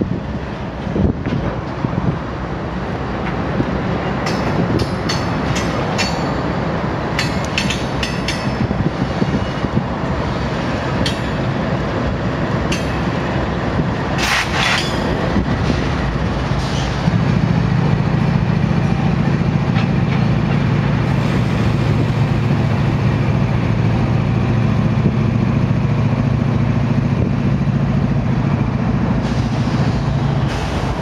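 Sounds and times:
train wheels rumbling on rail: 0.0s - 31.0s
wheels clacking over rail joints: 0.6s - 24.1s.

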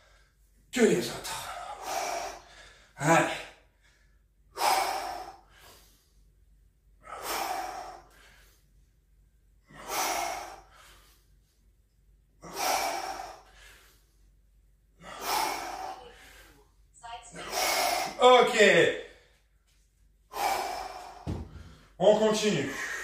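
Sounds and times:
man breathing out hard: 1.5s - 6.2s, 7.0s - 8.6s, 9.6s - 11.3s, 12.4s - 14.2s, 15.0s - 16.6s, 20.3s - 22.0s.

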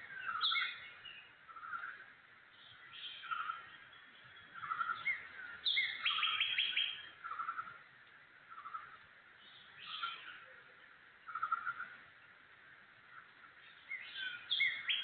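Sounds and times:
bird chirps: 0.0s - 7.8s, 8.5s - 12.2s, 13.1s - 15.0s
faint background hiss: 0.0s - 15.0s.

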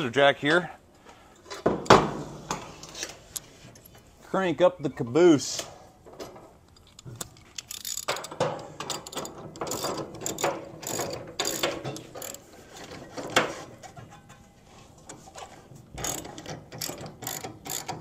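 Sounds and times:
jack ratcheting clicks: 6.7s - 12.4s, 16.0s - 18.0s.

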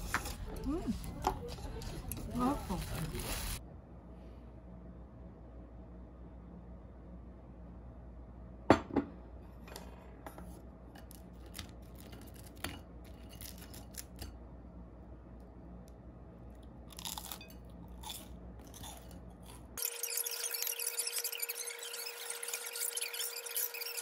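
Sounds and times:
faint hum: 0.0s - 24.0s
chewing crunches: 16.6s - 19.8s.

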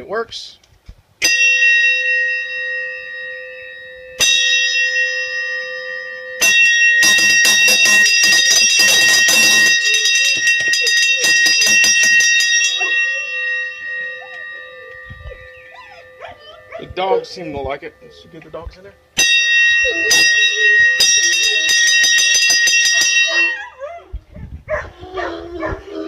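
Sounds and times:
metal bell ringing: 1.2s - 24.0s.

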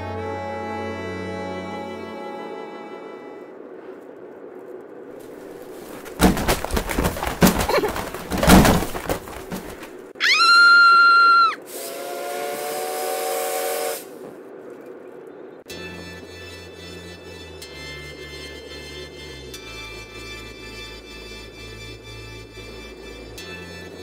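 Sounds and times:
irregular knocks and crashes: 5.9s - 10.1s
loud rising whistle: 10.2s - 14.2s
hiss: 11.6s - 14.3s.

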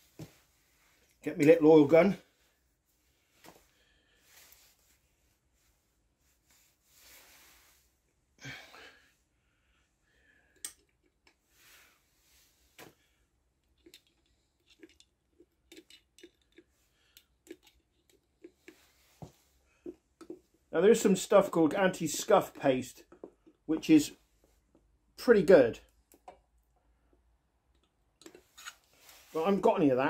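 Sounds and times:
breaths: 2.3s - 4.8s, 8.4s - 10.7s, 11.5s - 13.4s, 16.8s - 17.4s
soft rustles: 2.3s - 8.0s, 28.4s - 29.7s.

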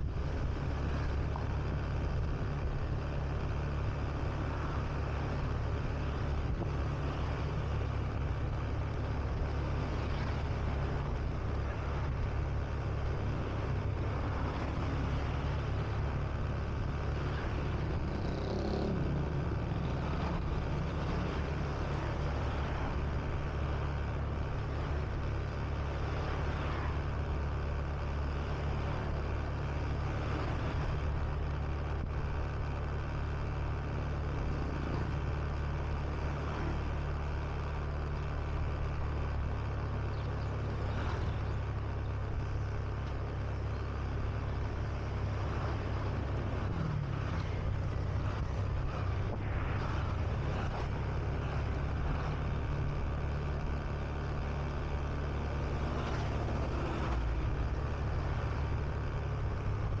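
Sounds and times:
wind and road noise: 0.0s - 60.0s
scooter engine running: 0.2s - 26.7s
motorbikes passing: 3.3s - 29.3s, 38.6s - 60.0s.

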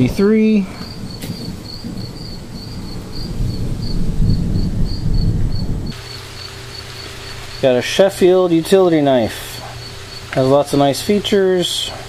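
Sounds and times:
thunder rumble: 0.0s - 7.9s
cricket chirping: 0.0s - 12.0s
faint steady hum: 0.0s - 12.0s
rain: 0.7s - 12.0s.

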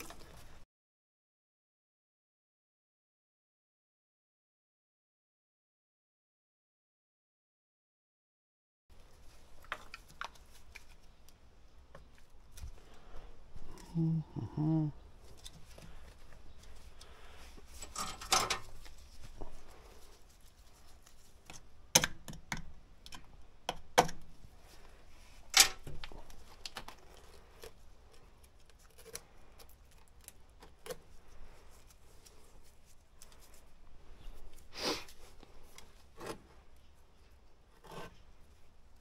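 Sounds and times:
tools and parts clacking: 17.7s - 18.8s, 25.5s - 26.0s.

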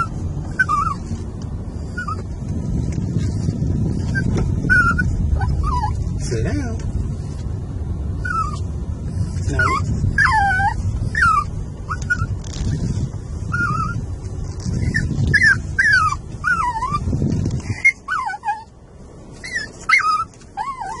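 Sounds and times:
small dog whining: 0.0s - 1.1s, 1.8s - 2.3s, 4.0s - 6.1s, 8.2s - 8.7s, 9.5s - 12.8s, 13.5s - 14.0s, 14.7s - 18.7s, 19.4s - 21.0s
low car rumble: 0.0s - 21.0s.

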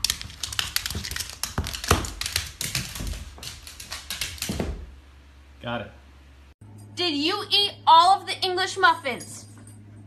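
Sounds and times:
dog claws scrabbling on wood floor: 0.0s - 4.9s.

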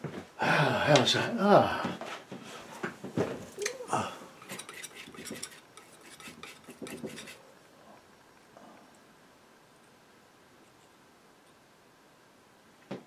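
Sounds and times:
palette knife clicking and scraping: 4.4s - 7.4s.

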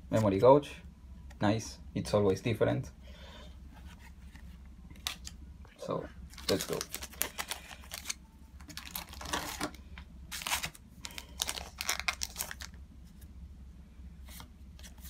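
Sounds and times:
foil pack crinkling and tearing: 6.4s - 12.8s.

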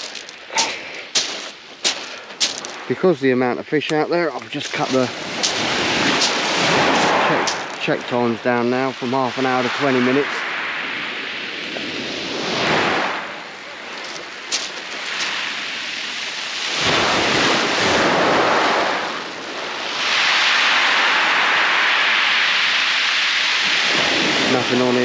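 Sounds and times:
surf breaking on shingle: 0.0s - 2.9s, 3.9s - 8.4s, 11.7s - 19.2s.

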